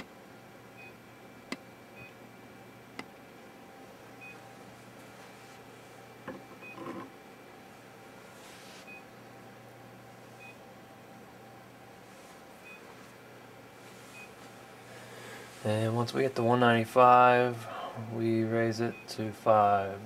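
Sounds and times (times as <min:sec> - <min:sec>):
low steady hum: 0:00.0 - 0:20.0.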